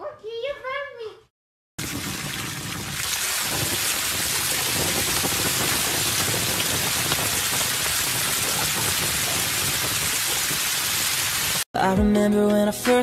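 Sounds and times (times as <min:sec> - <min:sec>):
water splashing in paddling pool: 0:01.8 - 0:11.6.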